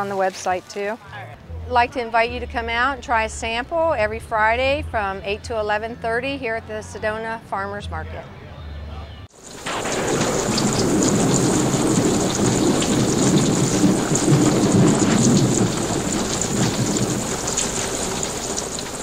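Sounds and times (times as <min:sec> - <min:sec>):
heavy rain: 0:09.3 - 0:19.0
rumbling thunder: 0:09.4 - 0:19.0.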